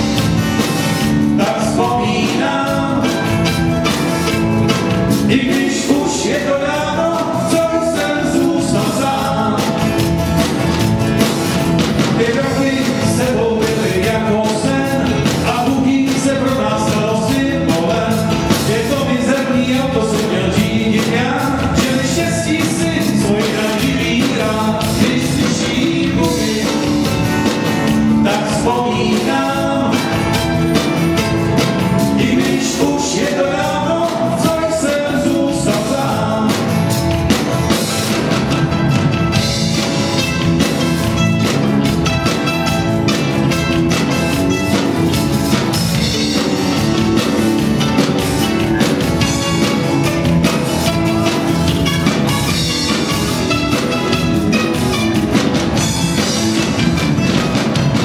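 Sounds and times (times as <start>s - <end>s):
drums: 0.0s - 58.0s
electric bass: 0.0s - 58.0s
strummed acoustic guitar: 0.0s - 58.0s
man singing: 1.0s - 3.6s, 5.0s - 10.1s, 12.0s - 31.3s, 31.9s - 37.2s
mandolin: 35.3s - 58.0s.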